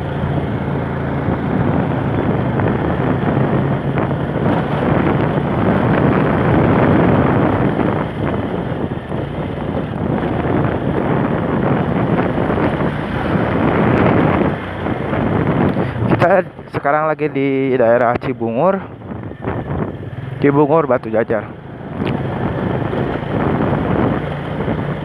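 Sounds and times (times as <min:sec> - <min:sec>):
scooter engine running: 0:00.0 - 0:16.1, 0:21.5 - 0:25.0
wind buffeting microphone: 0:00.0 - 0:25.0.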